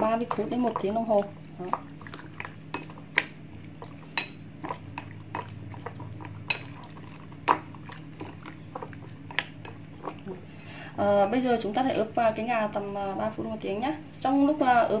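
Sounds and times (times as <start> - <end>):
steady low hum: 0.0 - 15.0
chopsticks tapping glass bowl: 4.2 - 5.5, 6.4 - 6.8.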